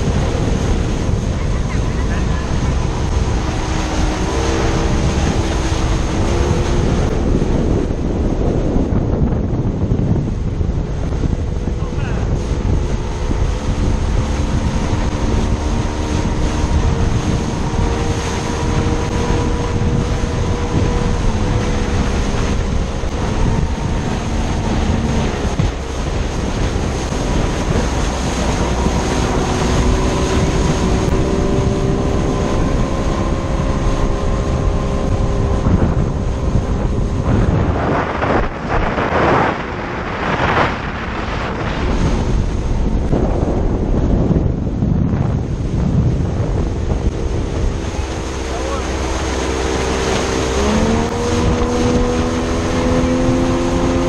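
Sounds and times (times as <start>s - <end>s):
outboard motor running: 0.0s - 54.0s
rushing water from wake: 0.0s - 54.0s
wind buffeting microphone: 0.0s - 54.0s.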